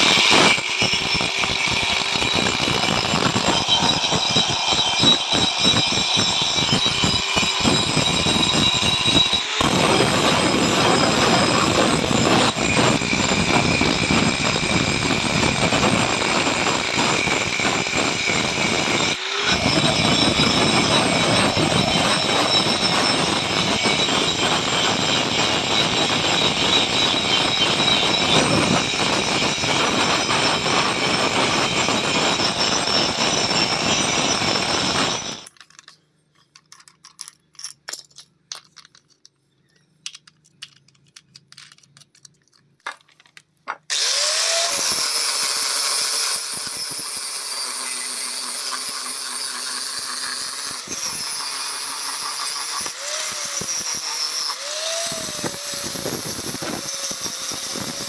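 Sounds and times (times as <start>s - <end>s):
angle grinder grinding metal: 0.0s - 35.6s, 43.7s - 58.0s
flap disc sanding blade: 47.6s - 58.0s.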